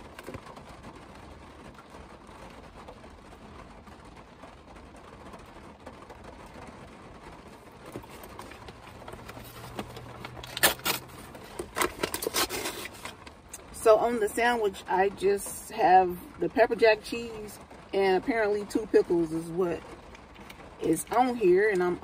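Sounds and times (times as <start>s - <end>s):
rain patter on car roof: 0.0s - 22.0s
paper wrapper crinkling: 7.8s - 13.6s.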